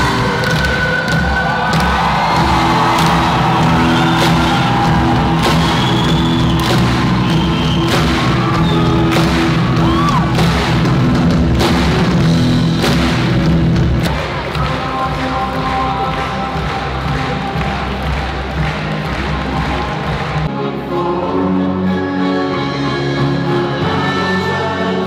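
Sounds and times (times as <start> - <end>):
live rock music: 0.0 - 25.0
strong drum hits: 1.2 - 15.8.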